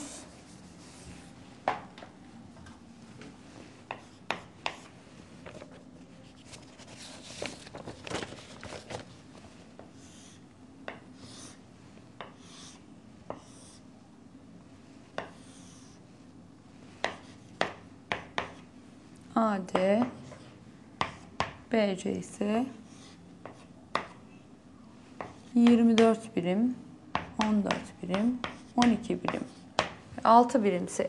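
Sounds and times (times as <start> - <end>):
chalk tapping on board: 3.9 - 4.9, 13.3 - 13.7, 15.2 - 15.5, 17.0 - 18.6, 25.2 - 26.2, 27.2 - 30.0
chalk scratching on chalkboard: 12.2 - 13.9.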